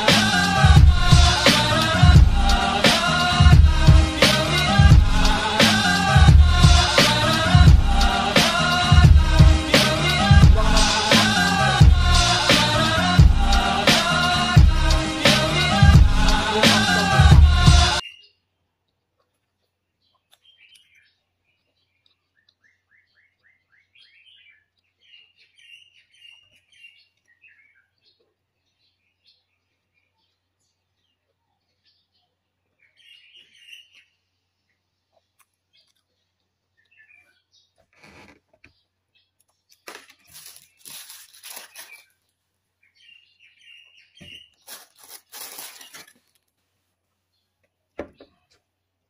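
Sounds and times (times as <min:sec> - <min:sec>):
bird chirping and trilling: 0:18.0 - 0:18.4, 0:20.0 - 0:28.2, 0:32.8 - 0:34.2, 0:38.7 - 0:42.2, 0:42.8 - 0:46.1
plastic cup and lid handled: 0:39.5 - 0:42.1, 0:44.2 - 0:46.6
plastic bag crinkling: 0:39.6 - 0:42.4, 0:44.5 - 0:46.6.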